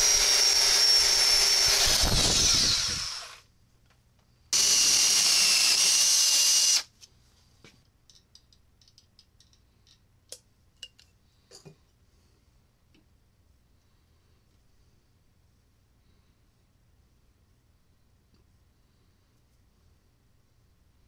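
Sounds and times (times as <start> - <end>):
electric drill boring metal: 0.0 - 3.4, 4.6 - 6.9.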